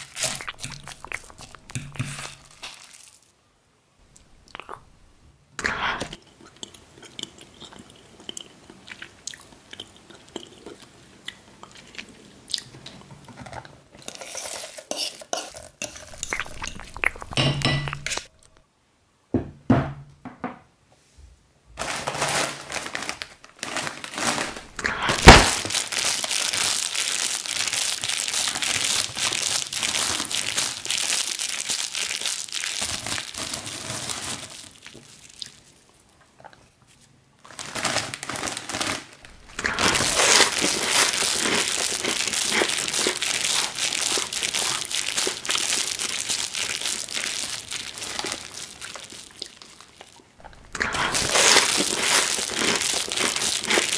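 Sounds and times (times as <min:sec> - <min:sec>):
plastic snack bag crinkling: 0:00.0 - 0:03.3, 0:15.6 - 0:18.6, 0:21.8 - 0:36.1, 0:36.9 - 0:53.9
fork scraping in a pot: 0:14.0 - 0:18.3
sharp pop: 0:25.2 - 0:25.6.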